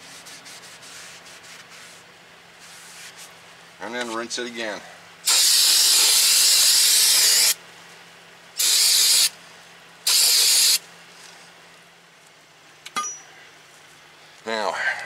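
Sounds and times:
aerosol can spraying: 0:05.3 - 0:07.6, 0:08.6 - 0:09.3, 0:10.1 - 0:10.8.

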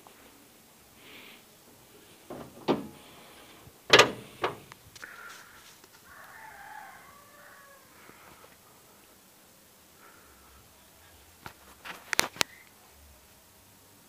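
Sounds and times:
car hood metal clunks: 0:02.3 - 0:04.7
rooster crowing: 0:06.0 - 0:08.4.

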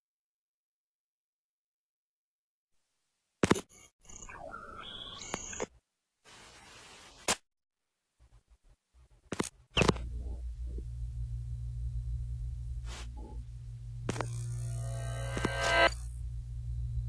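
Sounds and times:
low droning hum: 0:09.9 - 0:17.0.

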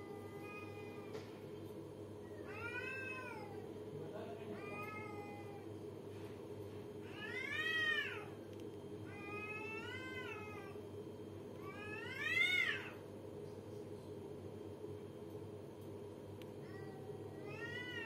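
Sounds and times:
steady low hum: 0:00.0 - 0:18.0
cats yowling: 0:02.4 - 0:03.7, 0:04.6 - 0:05.7, 0:07.0 - 0:08.4, 0:09.1 - 0:10.8, 0:11.6 - 0:13.0, 0:16.6 - 0:18.0.

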